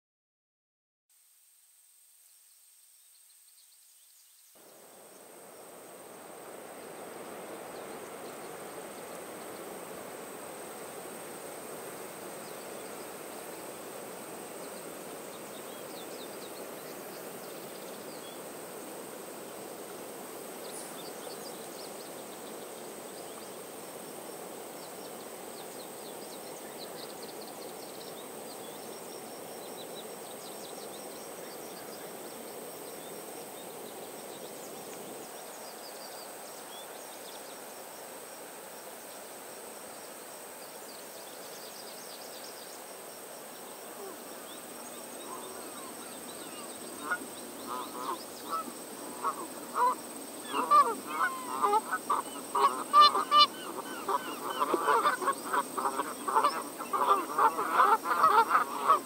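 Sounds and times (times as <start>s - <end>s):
steady low hiss: 1.1s - 59.0s
geese honking: 47.0s - 59.0s.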